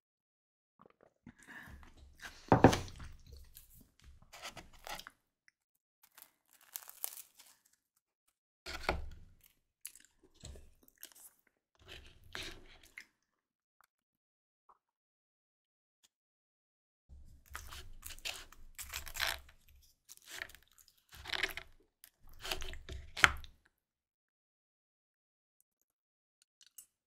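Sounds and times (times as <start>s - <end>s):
crunchy bread chewing: 4.4s - 5.3s, 6.0s - 7.9s, 17.4s - 23.5s.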